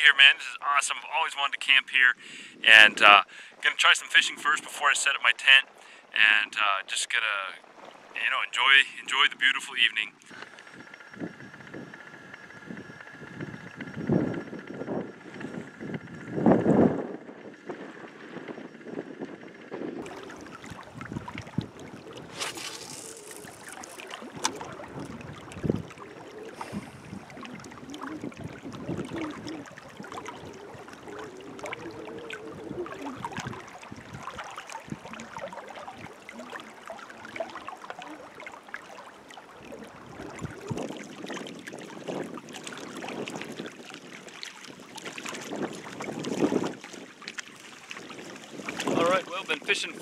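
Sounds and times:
wind on microphone: 10.7s - 38.4s, 39.5s - 49.4s
waves lapping on rocks: 20.0s - 50.0s.

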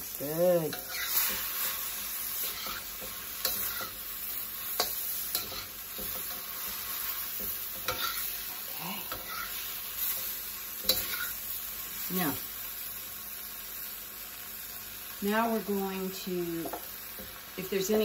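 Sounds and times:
food sizzling in a wok: 0.0s - 18.0s
spatula stirring and scraping: 0.6s - 11.4s.

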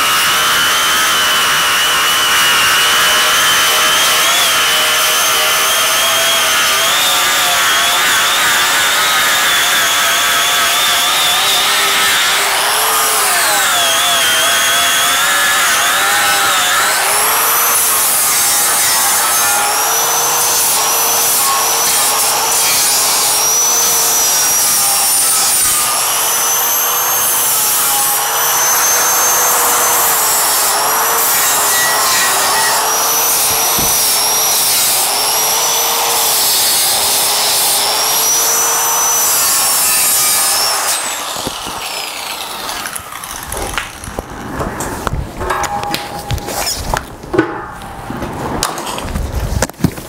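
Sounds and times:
angle grinder grinding steel: 0.0s - 48.0s
grinder disc winding down: 24.0s - 33.2s.

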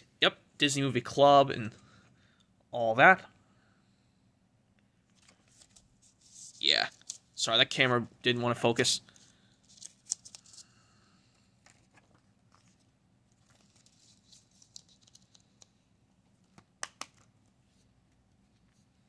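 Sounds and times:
paper rustling: 5.1s - 7.4s, 9.1s - 10.8s, 11.6s - 15.7s.

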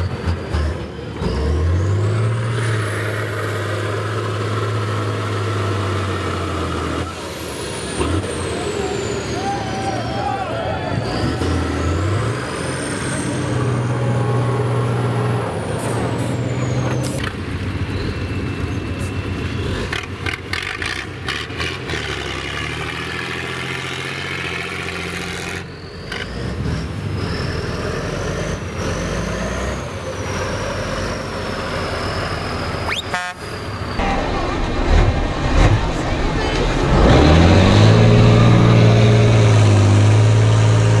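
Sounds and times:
truck diesel engine revving: 0.0s - 41.0s
faint high whistle: 32.1s - 33.3s.

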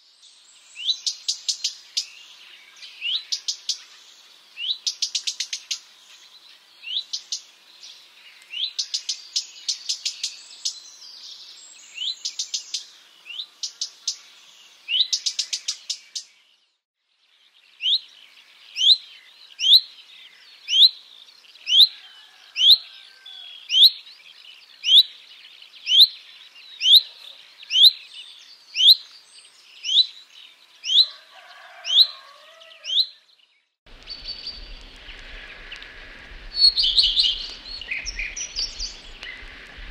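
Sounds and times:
bird dry ticking calls: 4.6s - 6.0s, 6.8s - 10.8s, 14.9s - 16.4s, 23.6s - 33.2s, 33.9s - 39.9s
bird whistled calls: 36.5s - 39.7s.

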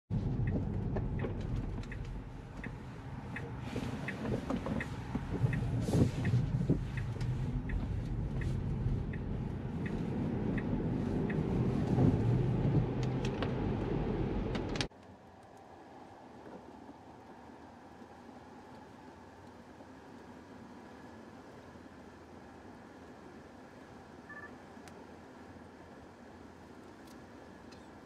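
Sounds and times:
turn signal ticking: 0.1s - 14.9s
tyre and road rumble: 0.1s - 19.3s.

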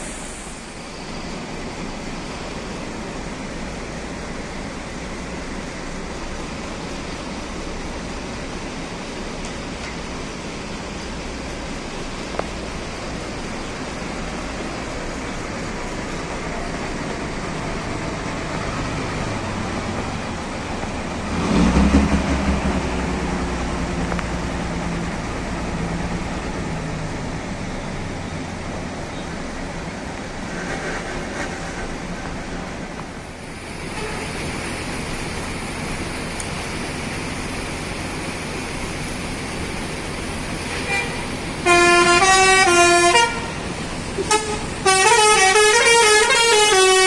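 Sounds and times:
bus diesel engine running: 0.0s - 47.0s
loud exhaust blast: 12.8s - 28.9s, 40.4s - 47.0s.

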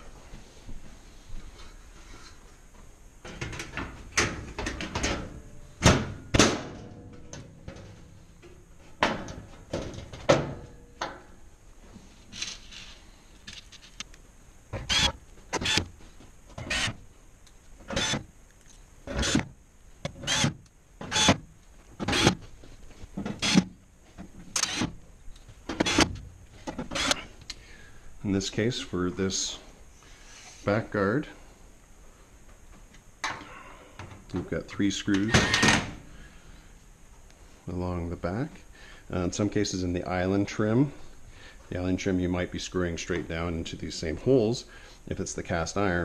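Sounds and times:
cordless drill driving screws: 16.6s - 17.0s, 20.2s - 20.5s, 24.6s - 24.9s.

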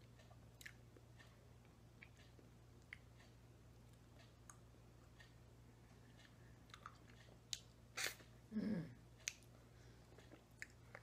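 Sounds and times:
lip and tongue clicks: 6.6s - 8.2s.

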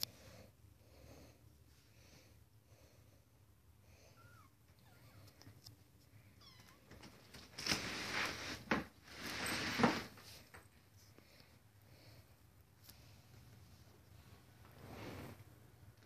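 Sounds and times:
faint small mews: 3.8s - 7.2s.

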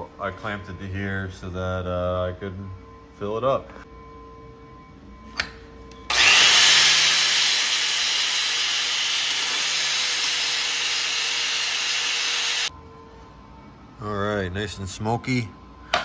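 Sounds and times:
angle grinder grinding metal: 6.1s - 12.7s.

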